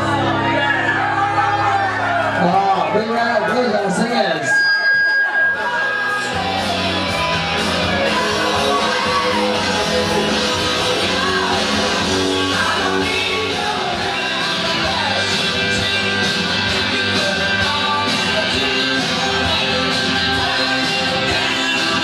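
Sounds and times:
rock music with guitar: 4.5s - 22.0s
person singing: 7.9s - 22.0s.

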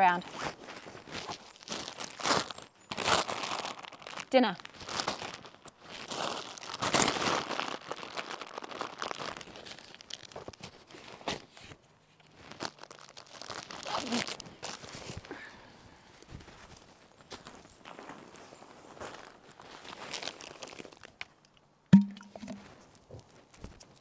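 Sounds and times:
plastic bag crinkling: 0.5s - 11.2s, 12.2s - 15.1s, 19.8s - 21.2s.

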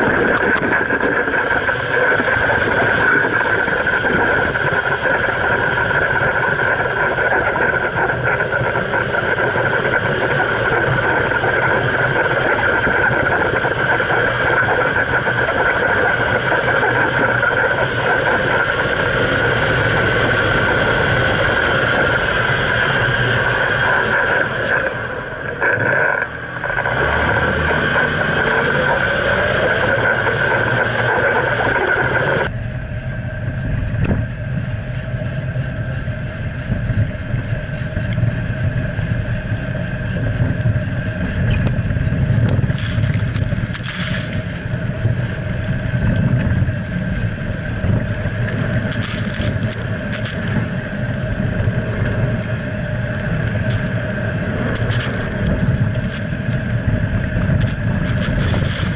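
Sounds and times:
engine and drivetrain rumble: 0.0s - 58.9s
tyre and wind noise: 0.0s - 58.9s.

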